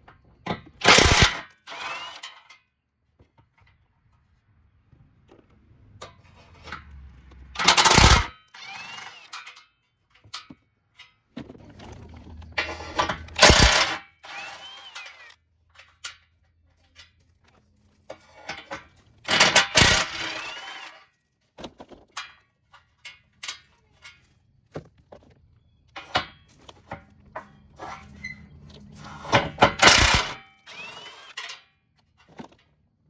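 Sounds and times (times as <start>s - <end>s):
impact tool spinning nuts: 0.8s - 2.3s, 7.6s - 9.4s, 12.6s - 15.4s, 19.3s - 21.0s, 29.2s - 31.6s.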